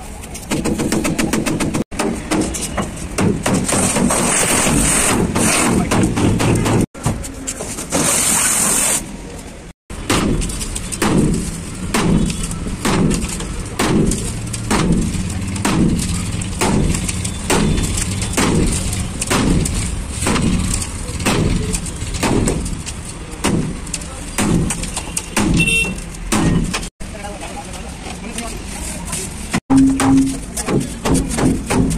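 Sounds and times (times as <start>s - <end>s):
sledgehammer on metal: 10.0s - 26.9s, 29.7s - 31.9s.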